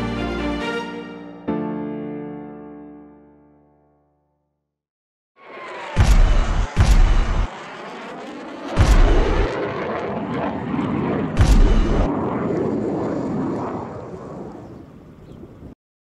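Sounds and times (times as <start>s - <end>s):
jet engines roaring: 5.4s - 15.7s.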